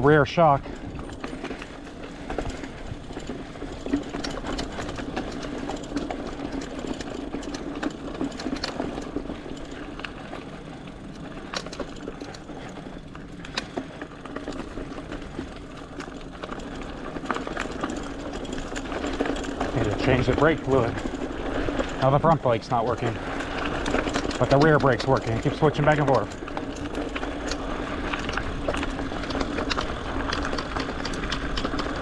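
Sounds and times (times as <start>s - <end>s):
bicycle rattling and clicking: 0.0s - 32.0s
electric bike motor whine: 0.8s - 22.0s.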